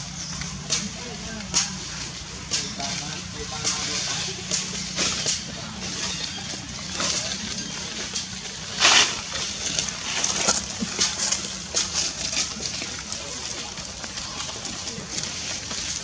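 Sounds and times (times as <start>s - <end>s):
dry leaves crackling and rustling: 1.8s - 16.0s
leaves crunching: 6.0s - 12.5s.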